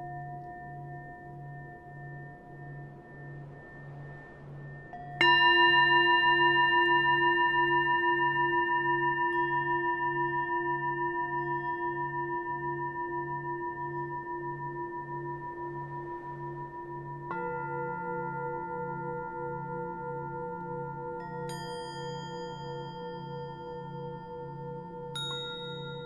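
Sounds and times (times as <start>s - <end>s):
low pulsing tone: 0.0s - 7.8s
bell-like tone ringing: 0.0s - 19.6s, 20.2s - 26.0s.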